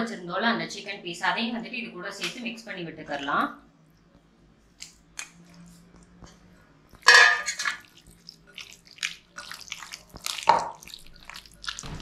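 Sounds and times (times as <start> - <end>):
wet squelching of batter by hand: 7.6 - 12.0.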